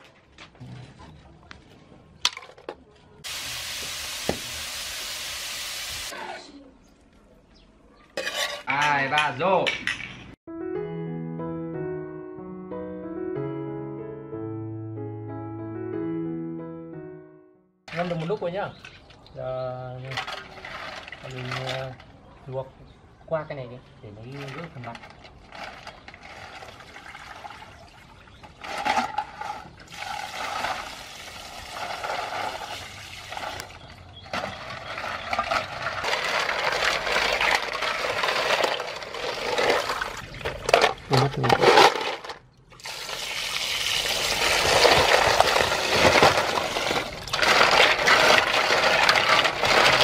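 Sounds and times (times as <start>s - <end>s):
water sloshing in basin: 20.1s - 22.1s, 24.3s - 41.3s.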